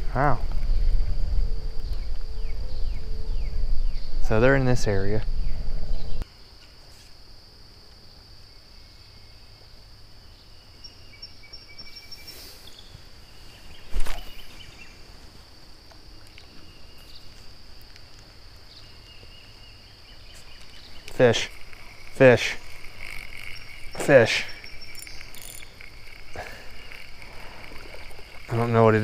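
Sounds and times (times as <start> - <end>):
insects droning: 0.0 - 29.0
faint chirps: 10.3 - 15.0, 18.7 - 29.0.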